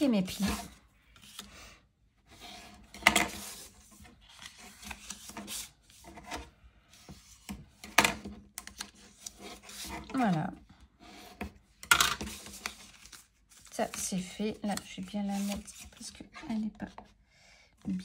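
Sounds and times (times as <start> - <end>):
bone folder scraping paper: 8.7 - 10.4.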